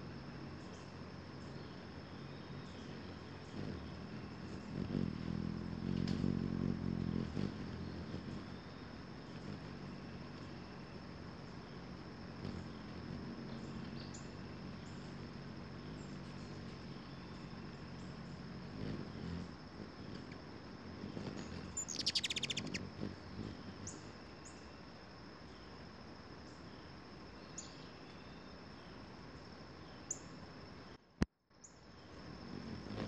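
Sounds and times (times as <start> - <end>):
low steady hum: 0.0 - 31.3
hummingbirds chittering: 0.3 - 24.7, 32.1 - 33.0.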